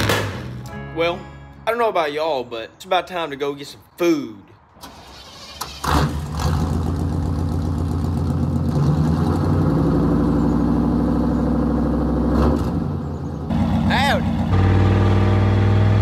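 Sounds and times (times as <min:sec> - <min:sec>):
loud engine starting and idling: 0:04.8 - 0:16.0.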